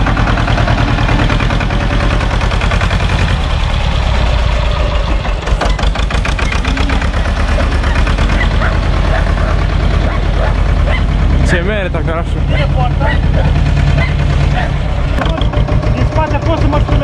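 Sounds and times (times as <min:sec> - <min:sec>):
diesel tractor engine running: 0:00.0 - 0:17.0.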